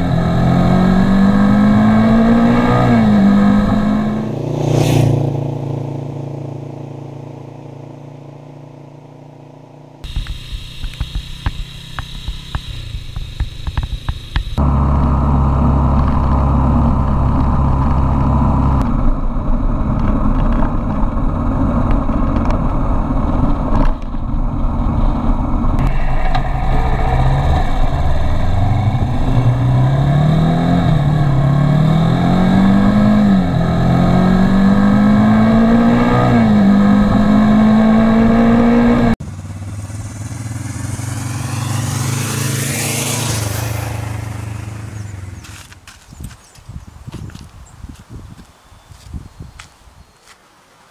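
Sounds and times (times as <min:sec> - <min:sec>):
motorcycle passing by: 0:00.0 - 0:08.2, 0:24.8 - 0:46.0
motorcycle engine accelerating: 0:00.0 - 0:46.2.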